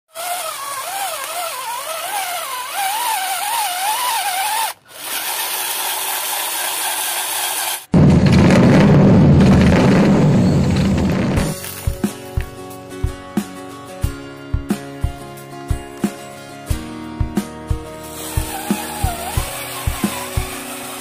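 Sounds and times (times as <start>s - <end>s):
small electric motor whining: 0.1s - 7.9s, 18.0s - 21.0s
loud low noisy sound: 7.9s - 12.5s.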